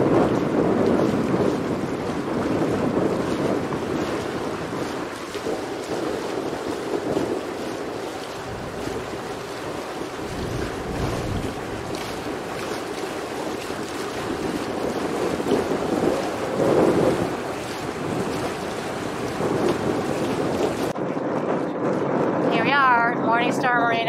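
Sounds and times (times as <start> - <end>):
water rushing past hull: 0.0 - 21.0
wind buffeting microphone: 0.0 - 24.0.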